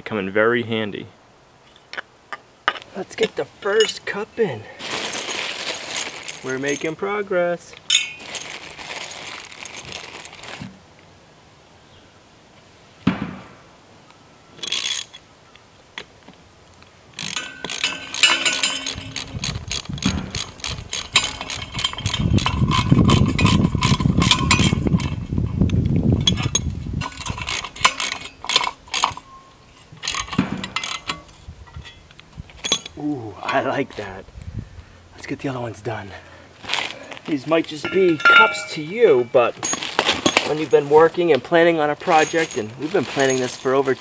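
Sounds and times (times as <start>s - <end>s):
ratchet wrench clicking: 14.6s - 15.2s, 17.2s - 25.2s, 26.2s - 29.3s.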